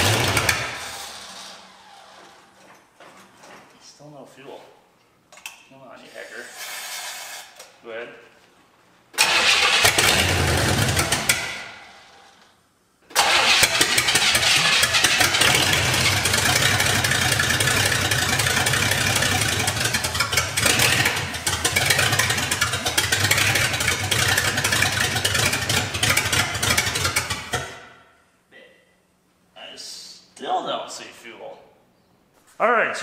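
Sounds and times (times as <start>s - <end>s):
car engine cranking on starter: 0.0s - 2.1s, 9.2s - 12.2s, 13.1s - 27.8s.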